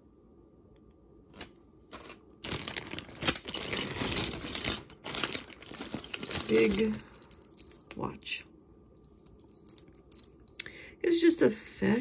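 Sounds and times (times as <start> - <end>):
bag crinkling and rustling: 1.3 - 7.5.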